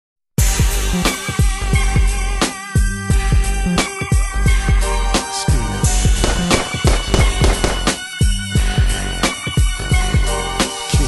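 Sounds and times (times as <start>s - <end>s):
hip-hop beat: 0.5s - 11.0s
heavy kick drums: 6.0s - 8.8s.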